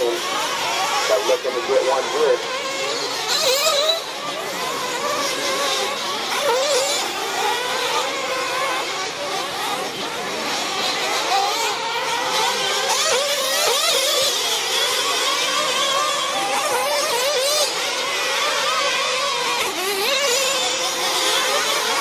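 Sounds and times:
small rc engines whining: 0:00.0 - 0:22.0.

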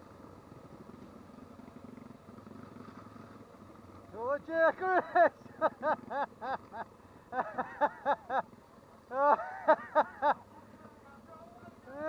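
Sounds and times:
man laughing: 0:04.5 - 0:08.4, 0:09.1 - 0:10.5.

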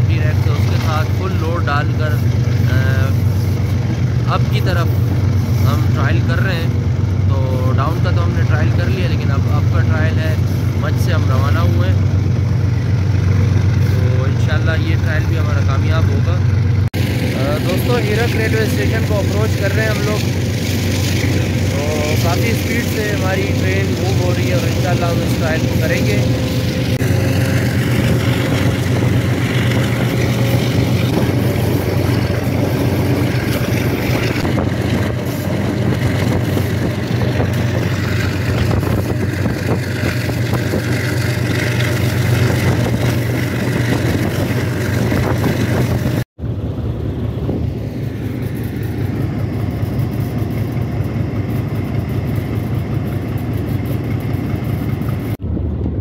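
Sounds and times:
locomotive engine drone: 0:00.0 - 0:56.0
rattle of running train: 0:00.0 - 0:56.0.

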